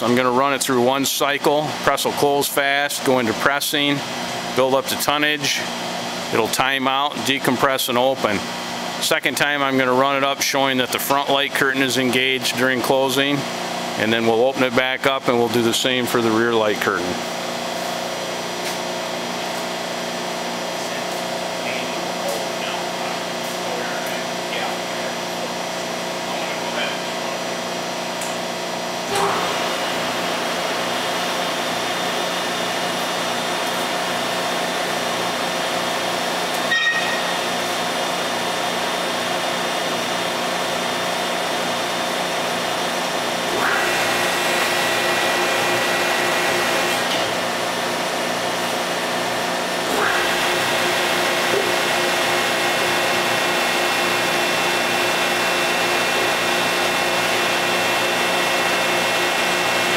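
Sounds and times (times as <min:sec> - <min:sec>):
hydraulic press motor hum: 0:26.9 - 0:59.9
high-pitched whine: 0:36.6 - 0:37.6.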